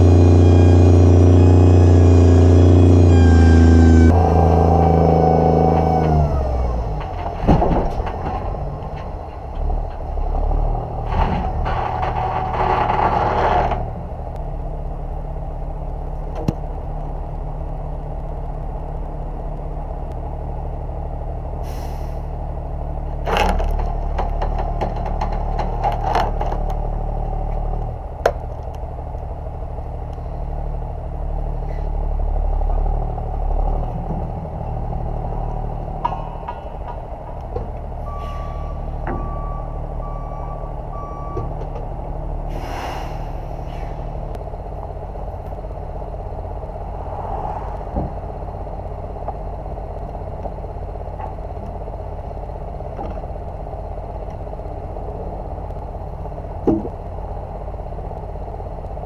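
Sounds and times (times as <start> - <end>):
diesel truck engine running: 0.0 - 59.0
load clattering and scraping: 6.9 - 14.0, 23.2 - 26.9
air hiss: 42.5 - 44.0.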